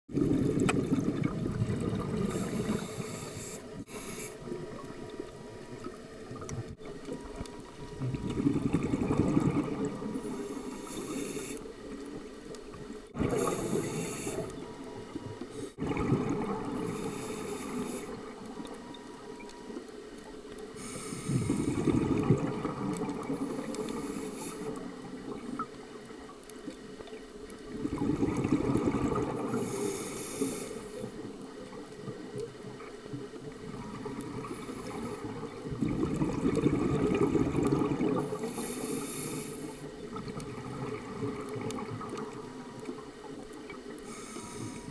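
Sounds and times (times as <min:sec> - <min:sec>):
exhaled air bubbling: 0:00.1 - 0:44.9
regulator inhalation hiss: 0:02.3 - 0:04.5, 0:10.2 - 0:11.7, 0:13.4 - 0:14.6, 0:16.9 - 0:18.2, 0:20.8 - 0:21.9, 0:23.6 - 0:24.8, 0:29.6 - 0:31.1, 0:38.4 - 0:39.9, 0:44.1 - 0:44.9.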